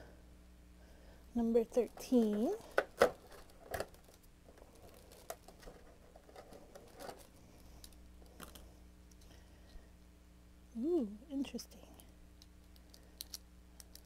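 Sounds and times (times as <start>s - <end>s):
plastic wrapper crinkling: 1.8s - 9.2s.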